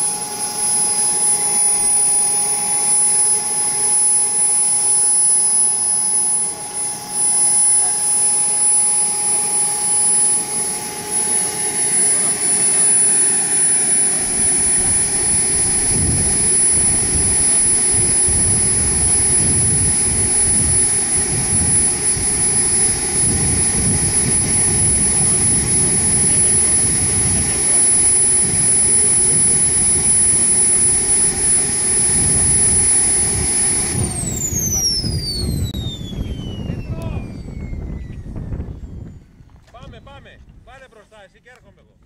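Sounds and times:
model jet turbine whine: 0:00.0 - 0:41.6.

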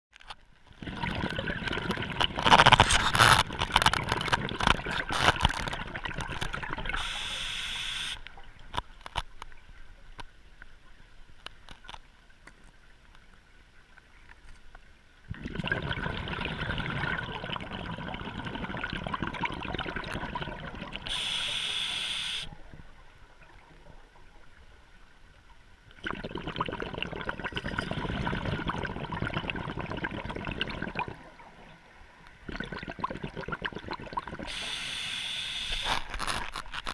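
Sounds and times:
exhaled bubbles gurgling: 0:00.7 - 0:08.6, 0:15.2 - 0:24.6, 0:25.9 - 0:36.6
regulator inhalation hiss: 0:07.0 - 0:08.2, 0:21.1 - 0:22.5, 0:34.5 - 0:36.0.

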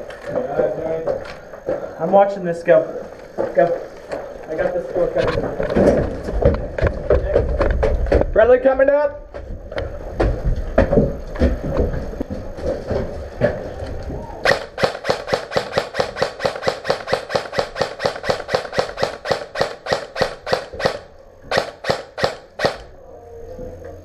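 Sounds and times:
airsoft rifle firing single shots: 0:14.4 - 0:22.9.

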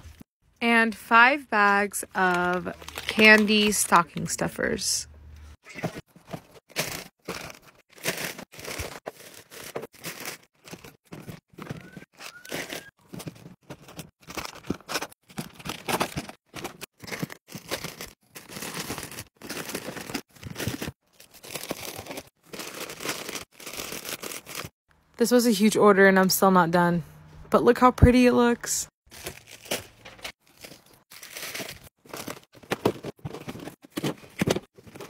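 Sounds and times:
candy packaging crinkling: 0:02.2 - 0:04.4, 0:12.2 - 0:24.7, 0:29.1 - 0:33.1.

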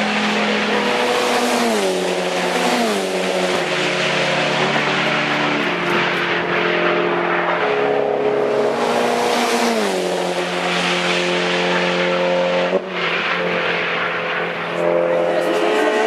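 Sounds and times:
race car engines: 0:00.0 - 0:16.0.

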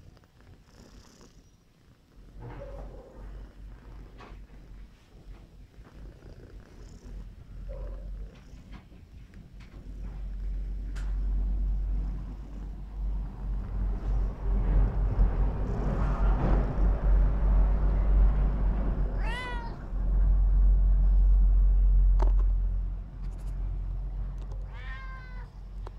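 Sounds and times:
low rumble: 0:09.4 - 0:25.9
cat meowing: 0:19.2 - 0:19.9, 0:24.5 - 0:25.7.

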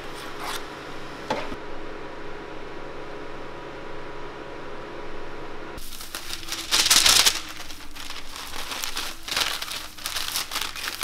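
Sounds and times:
plastic bag crinkling: 0:05.8 - 0:11.0.

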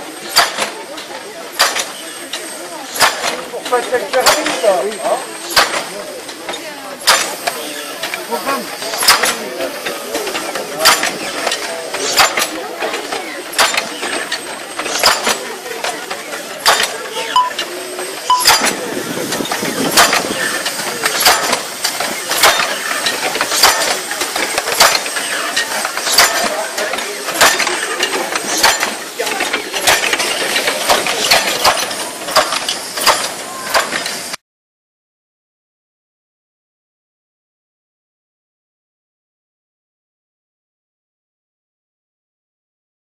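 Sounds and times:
ratchet wheel clacking: 0:00.3 - 0:34.3.

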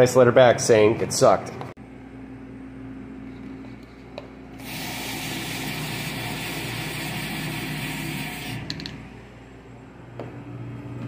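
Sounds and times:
low machine hum: 0:00.1 - 0:11.0
hot water running into container: 0:04.6 - 0:08.8.

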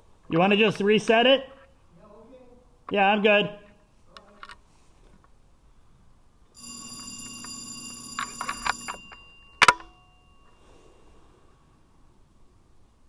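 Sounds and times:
electronic timer alarm ringing: 0:06.6 - 0:10.7.

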